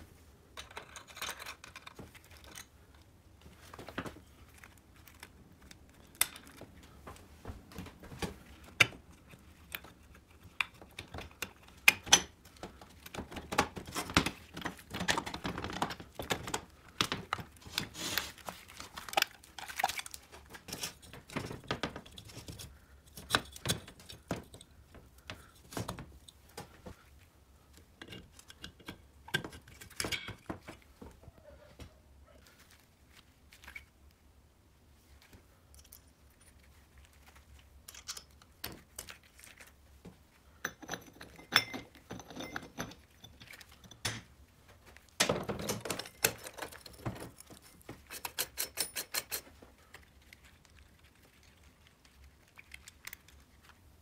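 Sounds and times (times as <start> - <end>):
rustling: 0.0 - 11.8, 12.4 - 28.5, 29.7 - 40.6, 49.3 - 54.0
metal parts clinking and scraping: 0.6 - 2.7, 40.7 - 44.0, 45.6 - 49.6.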